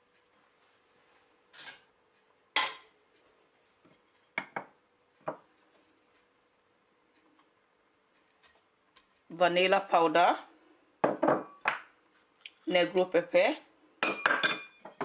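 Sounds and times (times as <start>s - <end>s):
kitchenware clinking: 1.5s - 1.9s, 2.5s - 3.0s, 14.0s - 15.0s.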